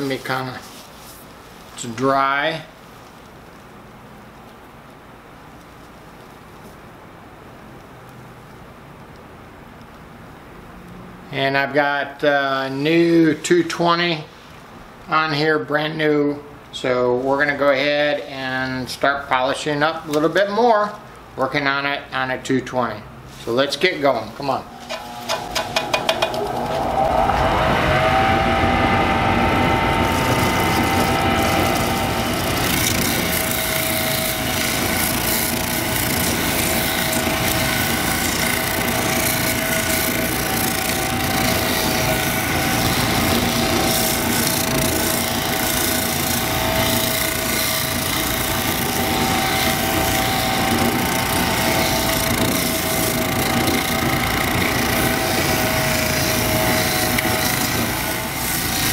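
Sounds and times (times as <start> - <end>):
polishing machine motor whining: 24.4 - 58.9.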